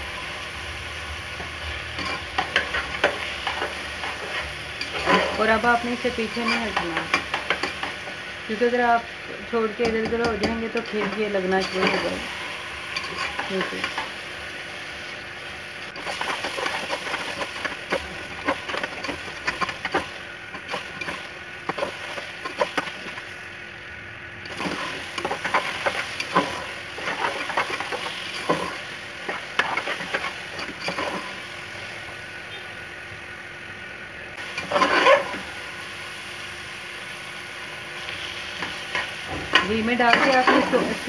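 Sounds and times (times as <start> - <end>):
frying sizzle: 0.0 - 41.0
metal ladle scraping a pot: 1.9 - 5.5, 12.9 - 13.9, 24.5 - 31.4, 34.6 - 35.4.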